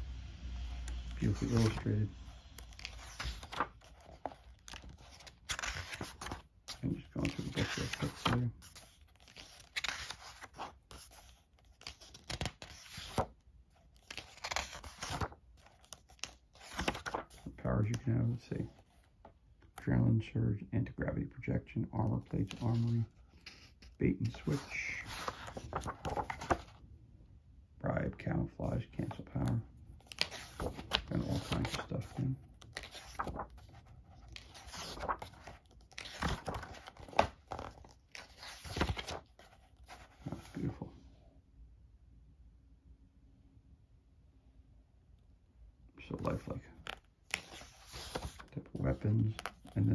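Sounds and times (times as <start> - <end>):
book pages turning: 0.6 - 20.0, 22.0 - 26.8, 29.0 - 40.9, 46.1 - 49.9.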